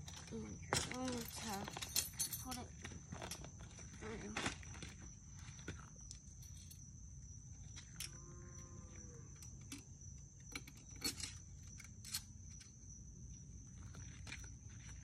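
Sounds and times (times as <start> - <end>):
metallic clicks and clinks: 0.0 - 3.5, 9.4 - 12.8
high insect drone: 0.0 - 15.0.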